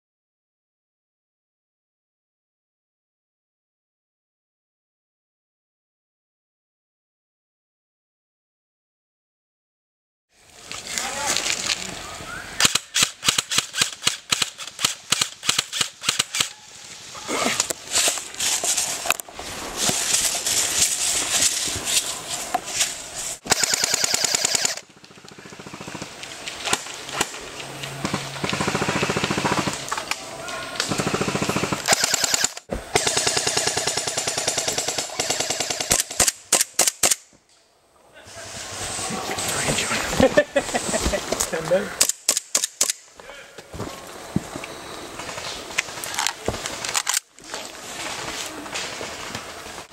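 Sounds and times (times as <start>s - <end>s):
airsoft gun shots and bursts: 12.6s - 16.5s, 23.4s - 24.8s, 28.5s - 29.7s, 30.9s - 37.2s.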